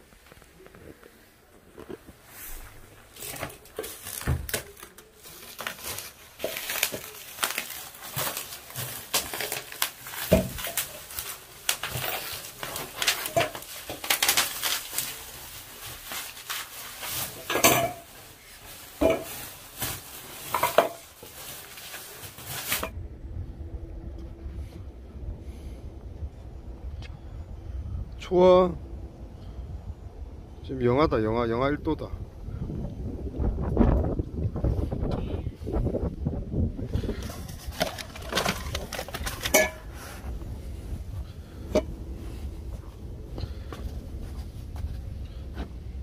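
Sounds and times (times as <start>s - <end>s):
bubble wrap crinkling: 1.7s - 23.0s, 37.2s - 40.2s
steel bowls clinking: 39.4s - 39.9s.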